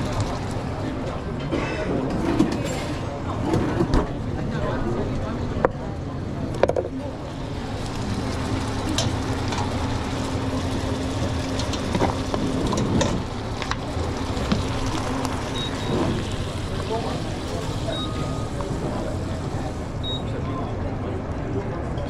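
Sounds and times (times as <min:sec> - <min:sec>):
steady hum: 0:06.1 - 0:21.6
kitchen noise rush: 0:06.9 - 0:20.8.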